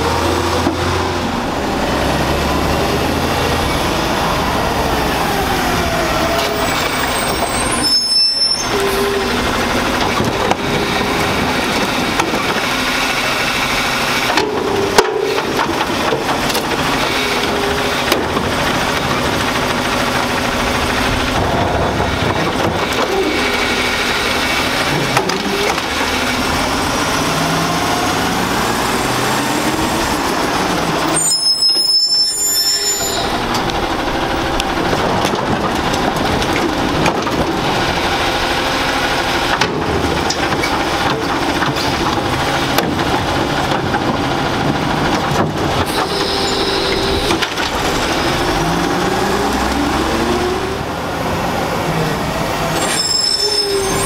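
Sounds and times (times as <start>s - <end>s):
garbage truck diesel engine revving: 0.0s - 54.0s
high squeal: 6.2s - 9.4s, 31.1s - 33.5s, 45.9s - 47.3s, 52.7s - 54.0s.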